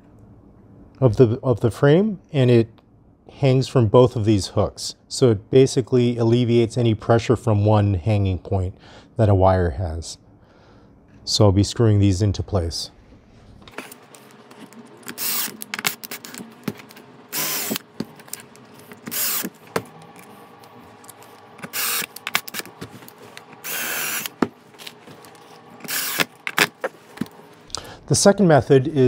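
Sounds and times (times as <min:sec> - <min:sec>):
cordless drill driving screws: 0:15.0 - 0:16.4, 0:17.3 - 0:19.7, 0:21.6 - 0:22.8, 0:23.5 - 0:24.4, 0:25.8 - 0:26.8.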